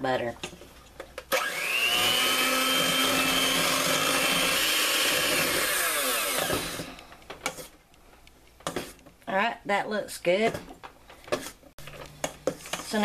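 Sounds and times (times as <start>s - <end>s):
electric hand mixer whining: 1.3s - 7.0s.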